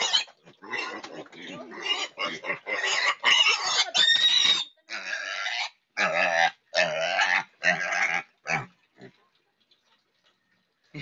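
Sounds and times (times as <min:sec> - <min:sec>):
piglet squealing: 0:00.0 - 0:08.6.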